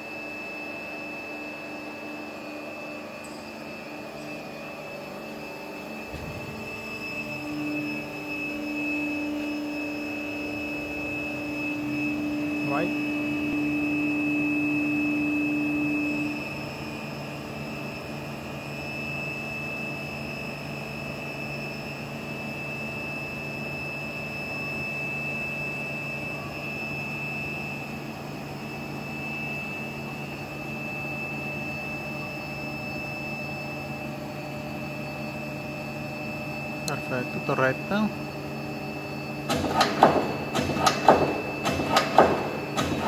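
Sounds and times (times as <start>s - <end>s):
constant high whine: 0.0s - 43.0s
machine hum: 0.0s - 43.0s
loud low hum: 1.5s - 18.6s, 33.7s - 43.0s.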